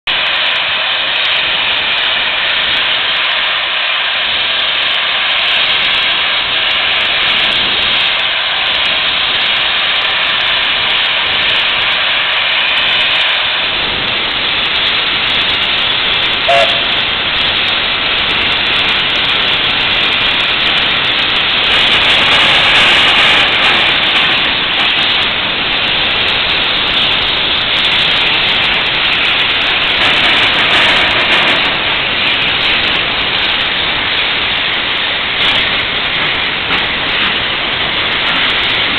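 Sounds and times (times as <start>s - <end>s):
steam locomotive venting steam: 0.1s - 38.9s
short tone: 16.5s - 16.9s.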